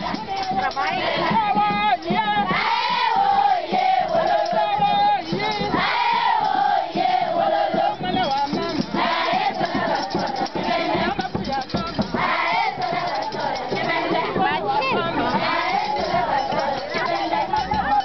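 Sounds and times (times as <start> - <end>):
crowd noise: 0.0 - 18.0
children singing in chorus: 2.4 - 4.7, 5.7 - 8.0, 8.9 - 11.1, 12.1 - 18.0.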